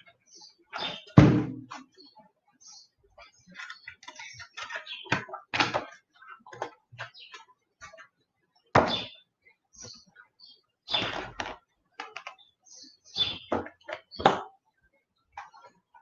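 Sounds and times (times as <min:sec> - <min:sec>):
papers and objects handled on desk: 0:03.2 - 0:08.2, 0:10.9 - 0:12.5.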